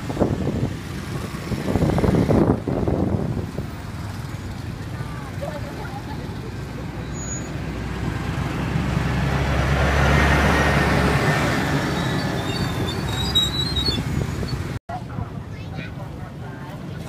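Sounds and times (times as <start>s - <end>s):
vehicle passing by: 0.0s - 14.8s.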